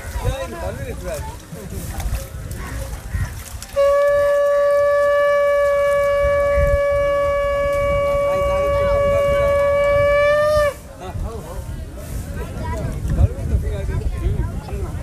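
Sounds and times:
faint voices murmuring: 0.0 - 15.0
conch shell blown: 3.7 - 10.9.

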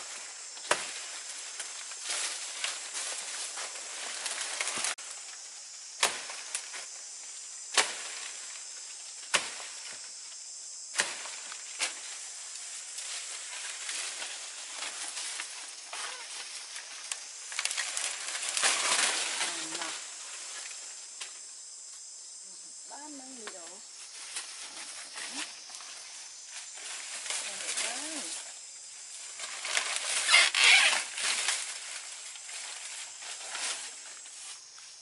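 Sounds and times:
dry leaves crackling: 0.0 - 5.3, 11.3 - 21.0, 23.1 - 34.7
high insect hiss: 0.0 - 35.0.

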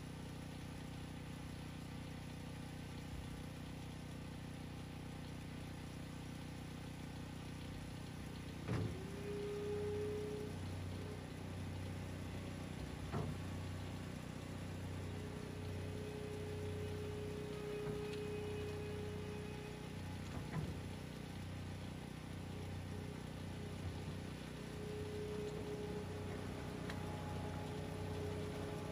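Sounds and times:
hydraulic whine: 7.6 - 28.9
loader engine running: 7.7 - 28.9.

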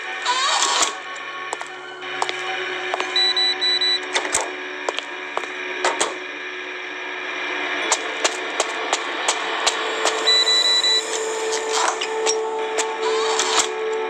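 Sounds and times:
steady electronic hum: 0.9 - 14.0
rapid high-pitched beeps: 10.2 - 11.1.

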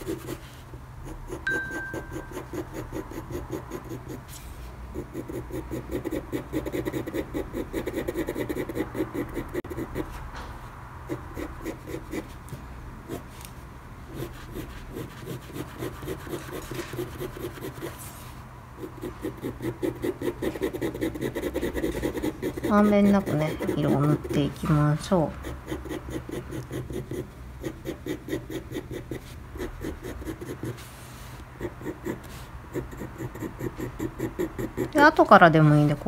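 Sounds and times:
pencil hatching on paper: 18.8 - 24.7.

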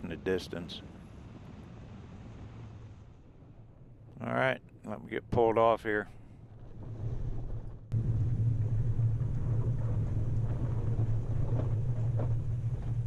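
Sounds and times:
vehicle engine and tyres rumbling: 6.2 - 13.0.

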